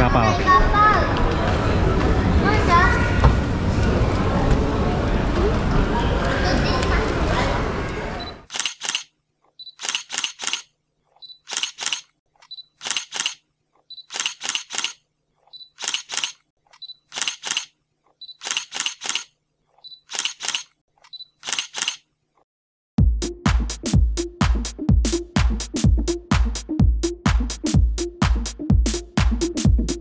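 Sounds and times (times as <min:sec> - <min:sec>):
camera shutter clicks: 0:08.5 - 0:09.1, 0:09.7 - 0:10.7, 0:11.3 - 0:13.4, 0:14.0 - 0:15.0, 0:15.6 - 0:17.7, 0:18.3 - 0:22.0.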